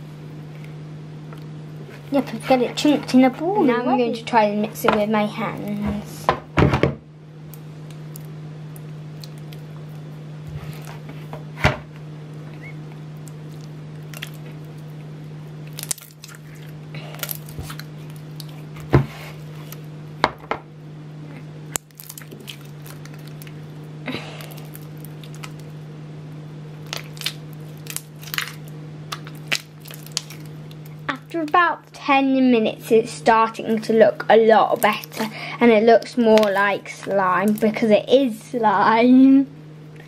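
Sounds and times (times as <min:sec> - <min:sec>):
steady low hum: 0:00.0 - 0:40.0
slime squelching: 0:12.6 - 0:15.0, 0:15.6 - 0:19.8, 0:21.7 - 0:25.8, 0:26.8 - 0:38.6.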